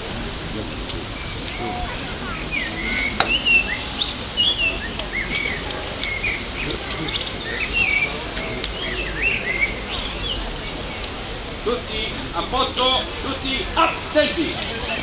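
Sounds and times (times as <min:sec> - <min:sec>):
small birds chirping: 0:00.6 - 0:11.3.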